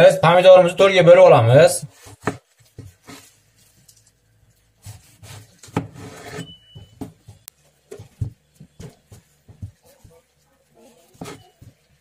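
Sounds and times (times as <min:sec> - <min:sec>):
knife scraping: 0:04.8 - 0:06.6, 0:11.1 - 0:11.7.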